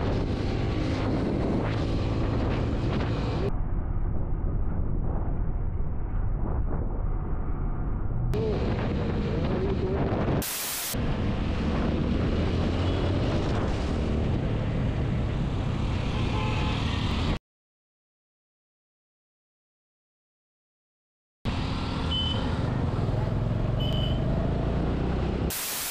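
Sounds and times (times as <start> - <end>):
wind rush: 0.0 - 15.7.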